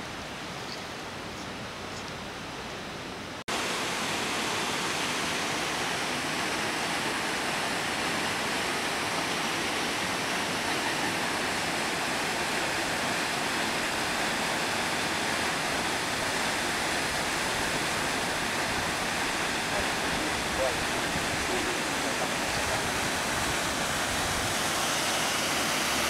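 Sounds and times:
water gushing from dam outlet: 0:03.5 - 0:26.0.

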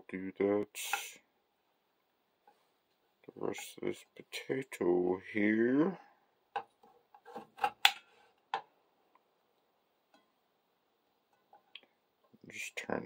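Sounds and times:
knife cutting potato onto plate: 0:06.6 - 0:08.0.

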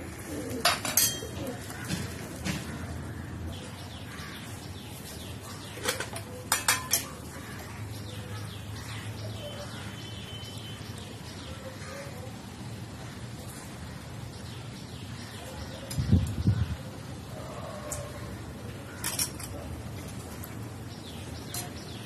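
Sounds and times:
metal utensils clinking: 0:00.6 - 0:01.5, 0:05.8 - 0:07.3, 0:18.9 - 0:20.2.

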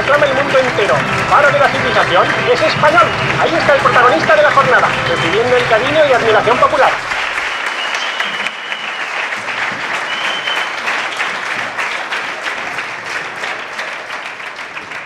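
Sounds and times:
audience clapping: 0:00.0 - 0:15.0.

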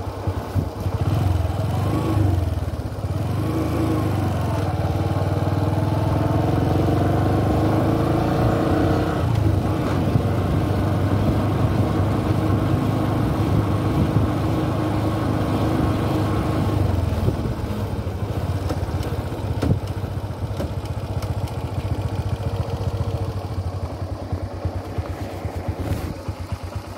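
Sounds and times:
motorcycle engine running: 0:00.0 - 0:26.9
wind and road noise: 0:00.0 - 0:26.9.

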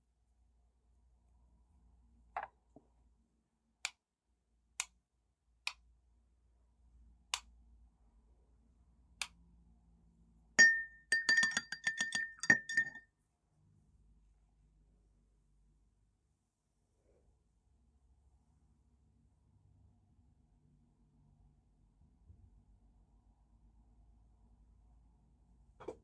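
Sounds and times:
paintbrushes clinking in glass jar: 0:10.6 - 0:13.0.

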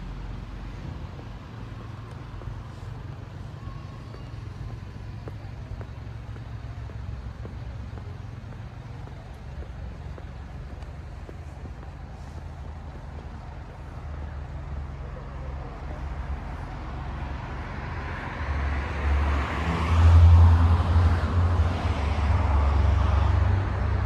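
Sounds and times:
road traffic rumble: 0:00.0 - 0:24.0
footsteps on paving: 0:00.4 - 0:15.0.

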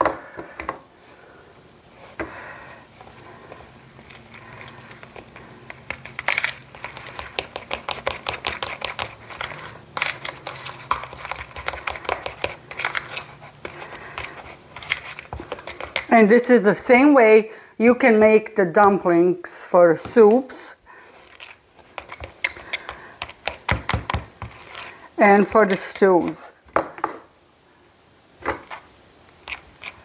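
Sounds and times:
fork beating batter in bowl: 0:03.5 - 0:16.2, 0:21.2 - 0:25.0, 0:29.4 - 0:30.0.

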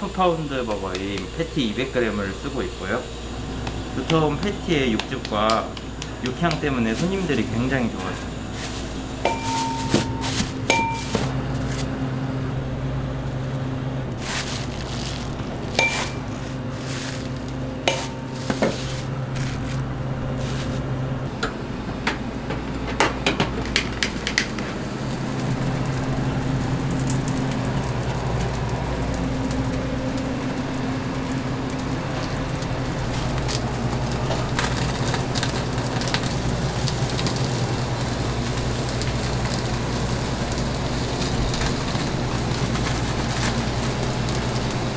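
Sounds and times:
hamburger patties sizzling: 0:00.0 - 0:12.0, 0:13.2 - 0:21.4, 0:23.6 - 0:44.9
metal utensils clanking: 0:09.2 - 0:11.3, 0:15.8 - 0:16.3, 0:17.9 - 0:18.9.

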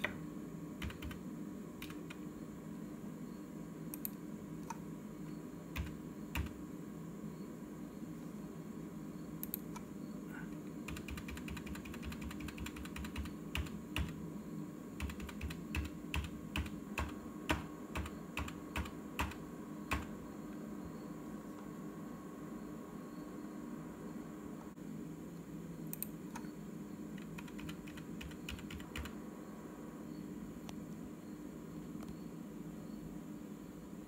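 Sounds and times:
computer keyboard typing: 0:00.8 - 0:01.2, 0:01.8 - 0:02.2, 0:05.7 - 0:06.6, 0:10.8 - 0:14.2, 0:15.0 - 0:20.2, 0:27.2 - 0:29.2.

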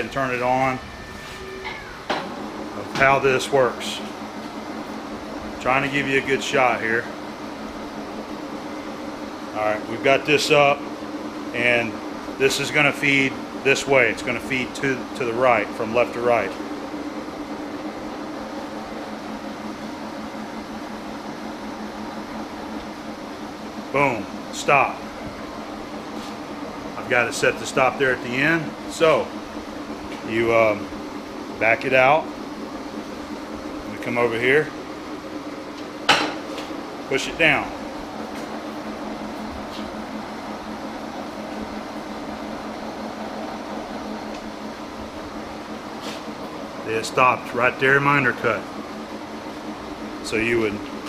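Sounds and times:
lathe mechanical hum: 0:00.0 - 0:51.0.

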